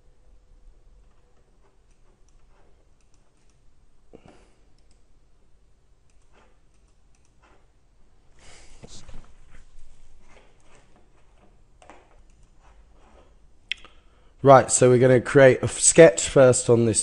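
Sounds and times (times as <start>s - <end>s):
low steady hum: 0.0s - 17.0s
computer mouse clicks: 1.0s - 3.7s, 4.7s - 5.1s, 6.0s - 7.7s, 10.3s - 14.0s.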